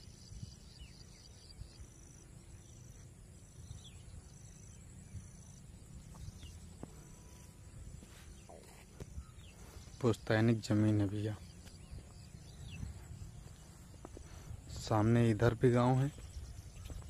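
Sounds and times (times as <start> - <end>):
bird chirps: 0.0 - 17.0
insect chirping in pulses: 0.0 - 17.0
low steady rumble: 11.2 - 15.0.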